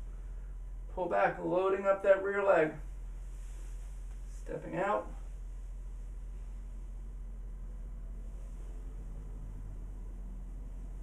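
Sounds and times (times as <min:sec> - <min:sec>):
steady low hum: 0:00.0 - 0:11.0
faint hiss: 0:02.4 - 0:11.0.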